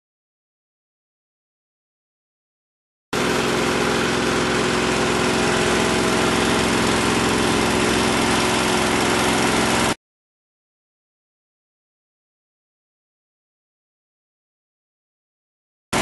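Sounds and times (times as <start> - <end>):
truck engine and pump running: 3.2 - 10.0.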